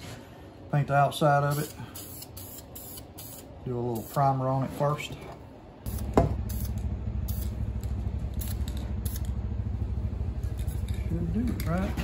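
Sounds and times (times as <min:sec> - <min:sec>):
aerosol spray can spraying: 0:01.5 - 0:04.2, 0:05.9 - 0:07.6.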